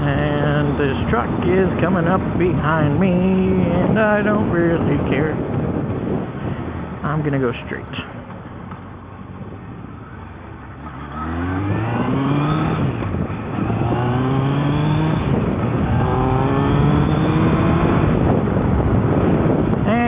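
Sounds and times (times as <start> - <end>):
motorcycle engine accelerating: 8.2 - 20.0.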